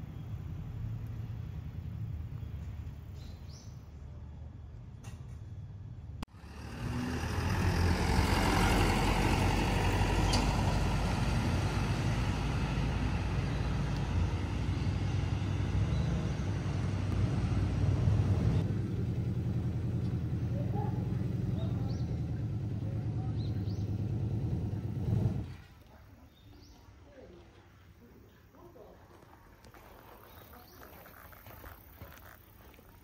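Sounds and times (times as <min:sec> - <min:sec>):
vehicle rumbling in motion: 0:00.0 - 0:25.9.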